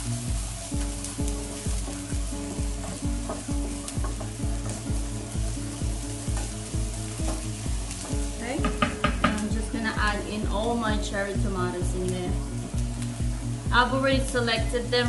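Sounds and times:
background music with steady beat: 0.0s - 15.0s
onions sizzling in oil: 0.0s - 15.0s
wooden spoon scraping skillet: 1.3s - 9.5s.

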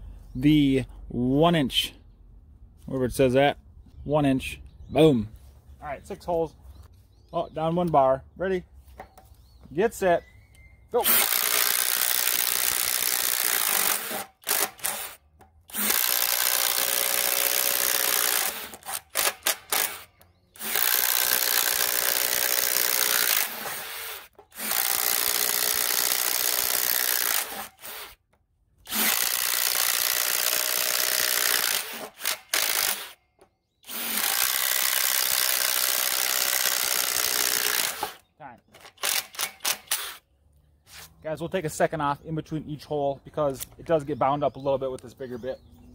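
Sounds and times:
impact driver boring through wood: 11.0s - 28.2s, 28.8s - 33.2s, 33.8s - 40.2s.

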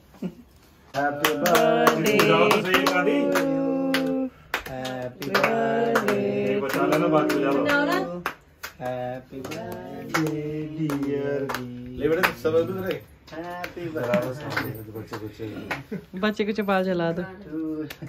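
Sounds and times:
people singing together: 0.9s - 13.0s
people clapping: 0.9s - 16.0s.

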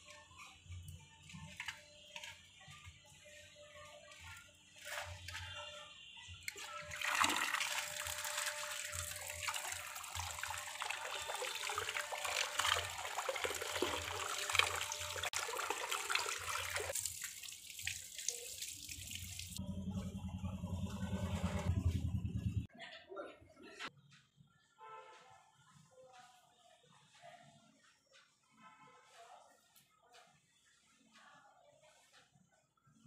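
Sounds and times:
water splashing over bangles: 6.5s - 19.6s.

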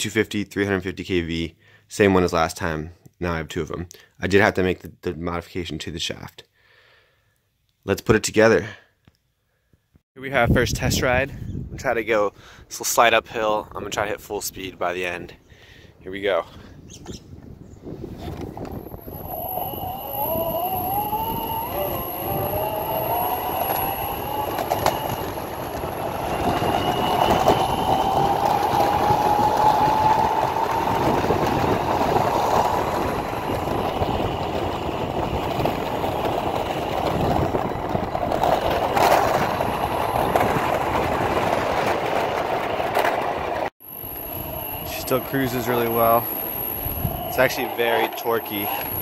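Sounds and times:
wheels rumbling on asphalt: 16.9s - 49.0s
electric motors whining: 18.6s - 41.3s, 43.9s - 49.0s.

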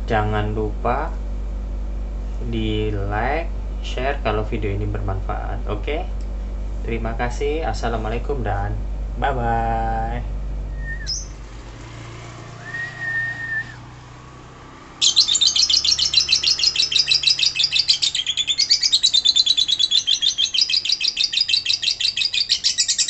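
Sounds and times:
bird short whistle: 10.8s - 11.3s
bird rapid chattering trill: 11.0s - 11.4s, 15.0s - 23.0s.

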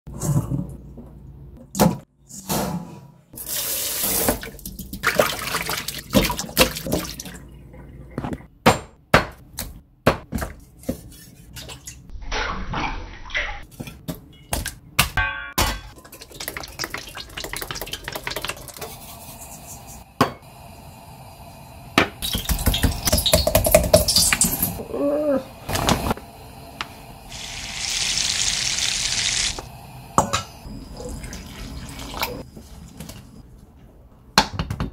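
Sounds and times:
steady hiss: 26.2s - 30.8s
water running and splashing: 27.3s - 29.6s.

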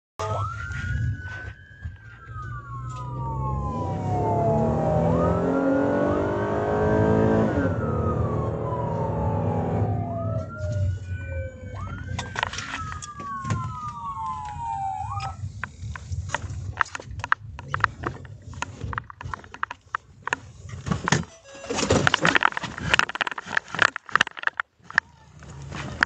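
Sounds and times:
police siren wailing: 0.2s - 16.9s
car engine rumbling: 2.4s - 21.2s.

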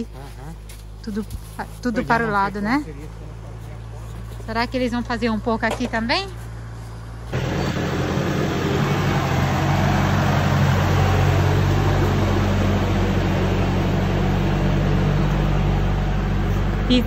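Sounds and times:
engine hum: 0.0s - 17.0s.

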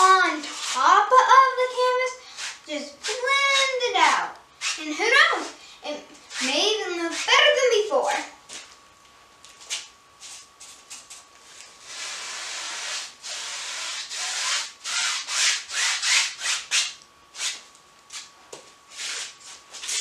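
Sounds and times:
paintbrush scrubbing on canvas: 0.4s - 0.9s.

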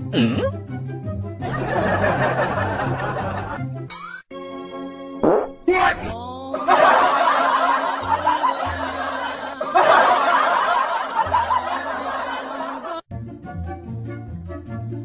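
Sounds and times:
background music: 0.0s - 15.0s
canned audience laughter: 1.4s - 3.7s, 6.6s - 13.1s.

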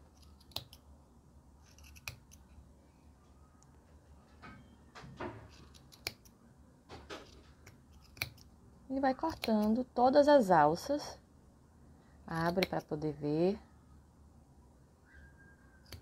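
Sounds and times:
scissors snipping yarn: 0.0s - 0.9s, 1.6s - 2.6s, 5.5s - 6.4s, 7.5s - 8.5s, 9.1s - 9.9s, 12.3s - 13.1s.

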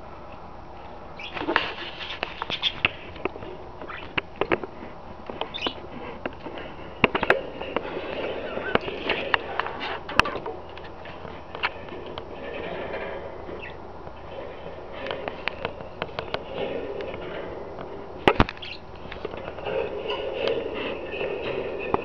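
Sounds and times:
budgerigars chirping: 1.2s - 1.6s, 2.3s - 2.9s, 5.4s - 5.8s, 13.6s - 13.8s, 18.3s - 18.9s.

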